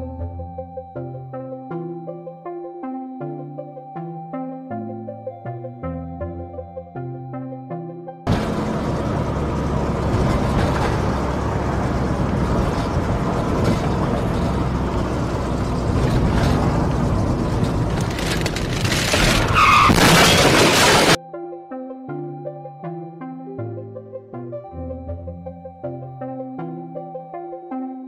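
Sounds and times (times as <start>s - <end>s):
car road and engine noise: 8.3s - 21.2s
high squeal: 19.1s - 21.2s.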